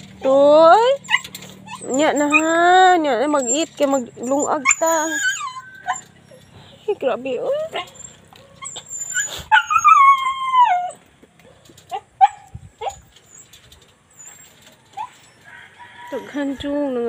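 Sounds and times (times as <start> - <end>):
animal whining: 0.0 - 11.1, 11.9 - 15.6
animal yelping: 0.1 - 11.0.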